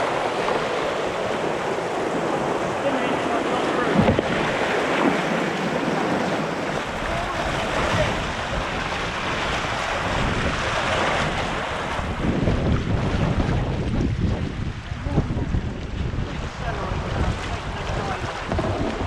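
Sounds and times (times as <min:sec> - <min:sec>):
river white water rushing: 0:00.0 - 0:13.4
wind buffeting microphone: 0:00.0 - 0:19.0.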